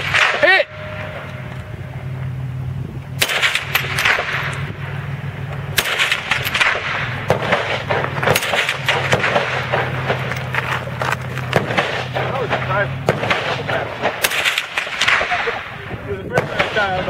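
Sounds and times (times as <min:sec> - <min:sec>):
rifle firing single shots: 0:03.2 - 0:04.7, 0:05.6 - 0:15.8, 0:16.4 - 0:17.0.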